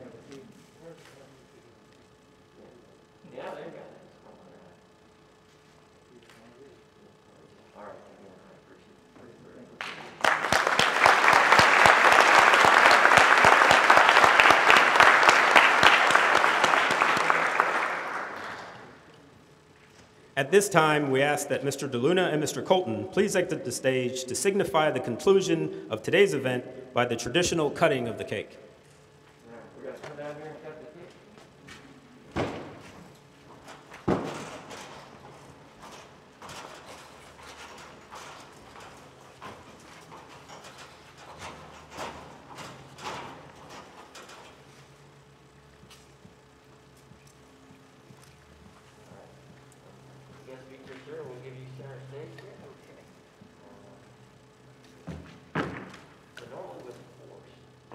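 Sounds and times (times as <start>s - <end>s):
audience applauding: 9.8s - 18.9s.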